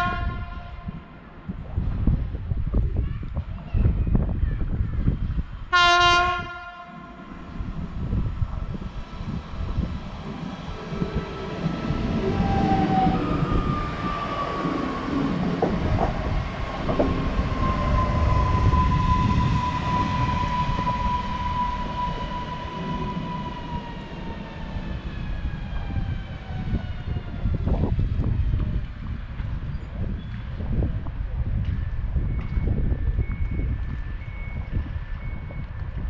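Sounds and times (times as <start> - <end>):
wheels rumbling on rail: 0.0 - 36.0
train knocks: 6.4 - 22.2
train traction motor whine: 7.3 - 28.8.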